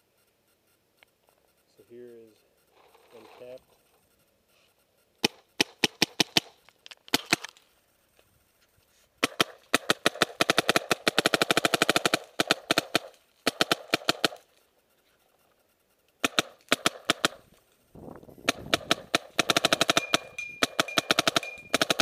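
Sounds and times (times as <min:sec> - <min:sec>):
paintball marker firing: 0:05.2 - 0:07.6, 0:09.2 - 0:14.6, 0:16.2 - 0:17.5, 0:18.4 - 0:22.0.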